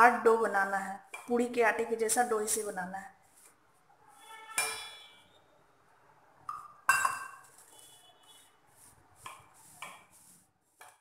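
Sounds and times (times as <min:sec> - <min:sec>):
dough being mixed by hand: 0:07.4 - 0:11.0.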